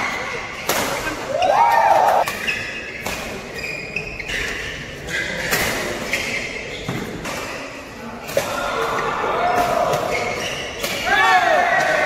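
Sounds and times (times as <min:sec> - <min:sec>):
shoes squeaking on court: 0:02.2 - 0:07.8, 0:10.0 - 0:11.0.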